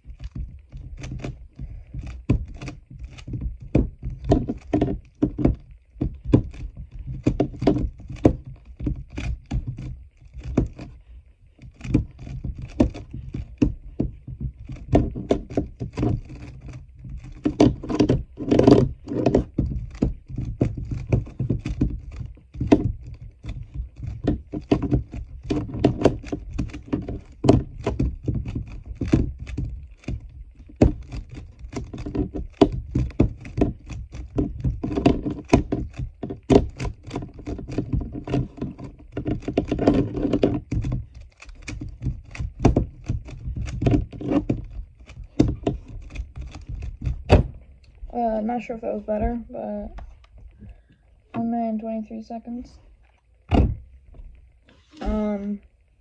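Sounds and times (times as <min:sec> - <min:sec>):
plastic puzzle cube clicking: 0:11.6 - 0:47.3.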